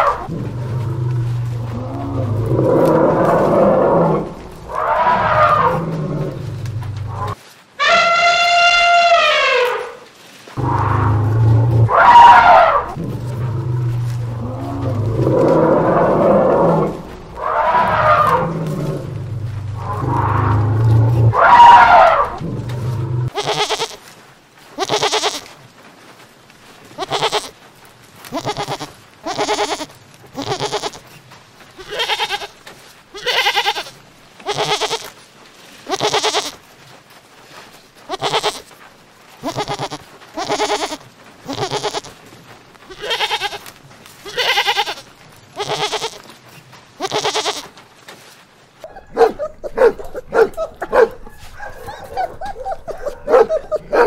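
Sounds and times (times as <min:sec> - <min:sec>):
goats bleating: 0:00.0 - 0:09.8, 0:23.2 - 0:24.1, 0:24.7 - 0:25.6, 0:27.0 - 0:27.6, 0:28.2 - 0:31.1, 0:31.8 - 0:35.2, 0:35.8 - 0:36.7, 0:38.1 - 0:38.8, 0:39.4 - 0:46.4, 0:47.0 - 0:47.8
dogs barking: 0:19.8 - 0:22.4, 0:48.8 - 0:54.0.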